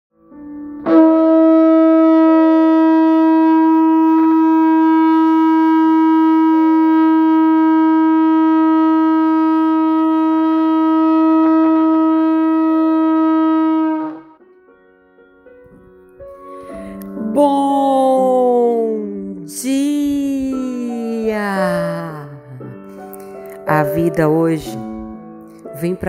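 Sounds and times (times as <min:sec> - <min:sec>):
long horn blast: 0:00.8 - 0:14.4.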